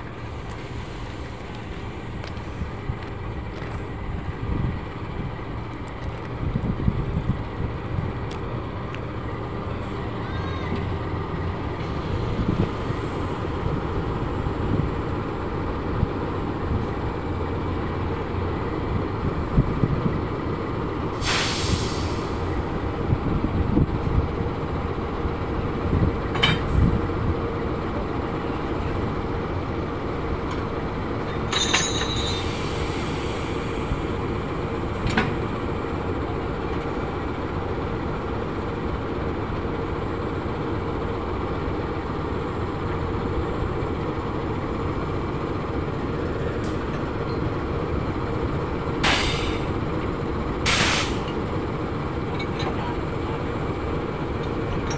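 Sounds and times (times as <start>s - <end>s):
locomotive engine rumbling: 0.0s - 54.9s
short air hiss: 21.2s - 22.5s, 49.0s - 49.7s, 50.7s - 51.3s.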